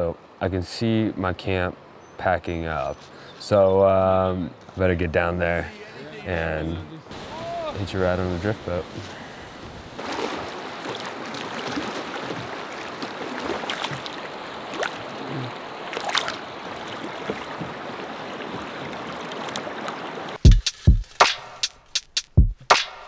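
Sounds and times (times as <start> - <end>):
river water rushing: 5.6 - 20.5
water splashes: 6.8 - 21.6
loud music beat: 20.5 - 23.0.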